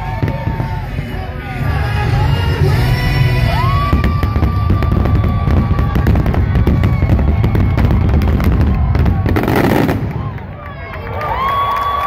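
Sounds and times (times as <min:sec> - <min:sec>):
show music: 0:00.0 - 0:05.5
fireworks bangs and crackles: 0:00.0 - 0:11.7.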